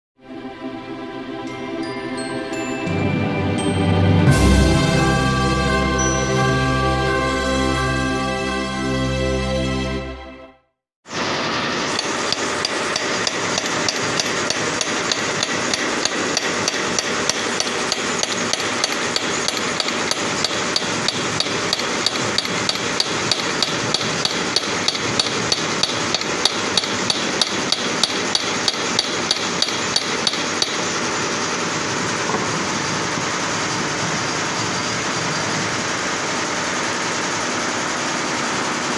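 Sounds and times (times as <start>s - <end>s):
hammer tapping on steel: 12.0s - 30.8s.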